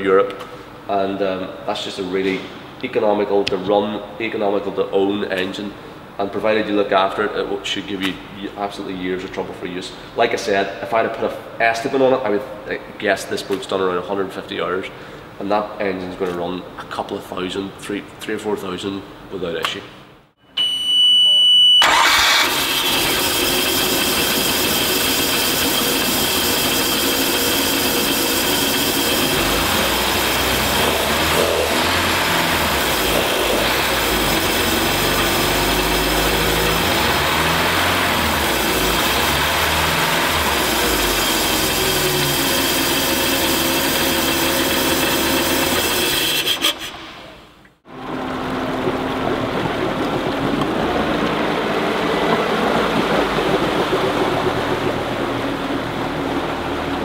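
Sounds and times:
warning buzzer beep: 0:20.6 - 0:21.9
boat engine running: 0:22.8 - 0:46.2, 0:48.0 - 0:57.0.

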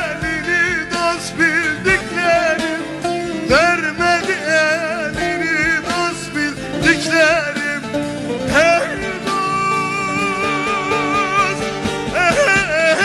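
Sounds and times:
folk music with plucked strings: 0:00.0 - 0:13.0.

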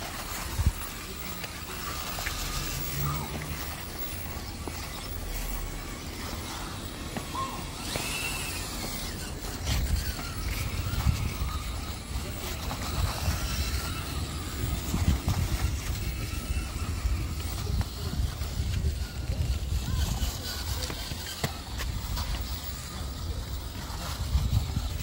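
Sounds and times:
wind rumble on microphone: 0:00.0 - 0:01.2, 0:08.4 - 0:25.0
electric motor running quietly: 0:00.0 - 0:25.0
tyres scrabbling over stone: 0:00.0 - 0:25.0.

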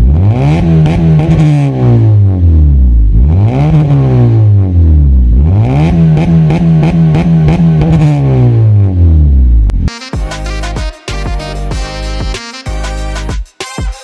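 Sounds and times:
car exhaust revving: 0:00.0 - 0:09.9.

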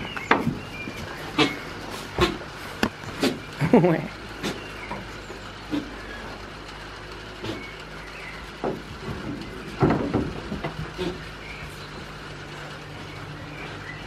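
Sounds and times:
steady low hum: 0:00.0 - 0:14.0
short knocks and thumps: 0:08.6 - 0:11.2.

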